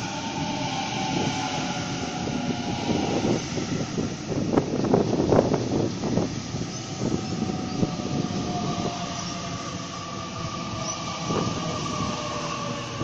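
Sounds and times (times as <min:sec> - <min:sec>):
train wheels rumbling on track: 0:00.0 - 0:13.0.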